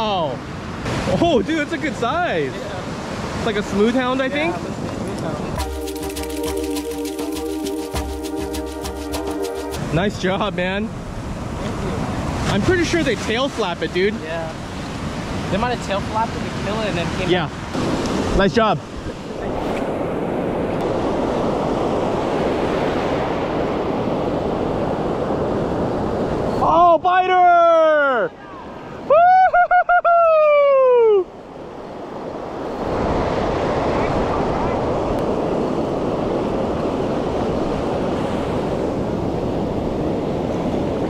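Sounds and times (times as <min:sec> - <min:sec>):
ocean surf washing over sand: 0:00.0 - 0:29.1, 0:31.0 - 0:41.0
wind noise on microphone: 0:31.8 - 0:41.0.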